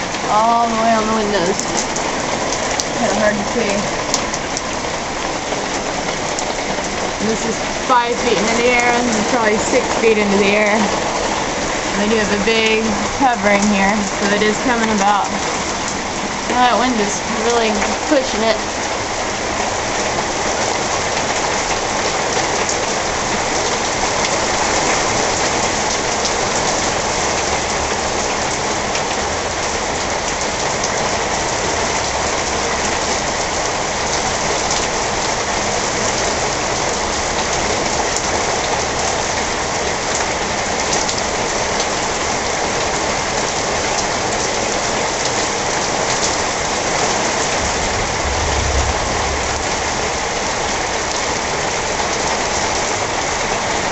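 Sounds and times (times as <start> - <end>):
heavy rain pouring: 0.0 - 53.9
low thunder rumble: 46.7 - 51.9.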